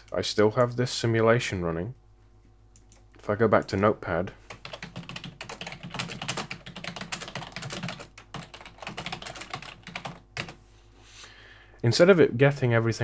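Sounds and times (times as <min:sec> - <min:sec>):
fast keyboard typing: 0:04.5 - 0:10.6.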